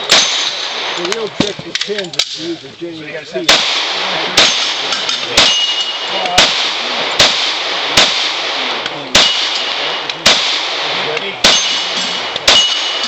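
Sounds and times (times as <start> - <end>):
ringing metal target: 0.0 - 1.5, 3.5 - 7.4, 9.1 - 13.0
pistol shots: 0.0 - 2.5, 3.4 - 13.0.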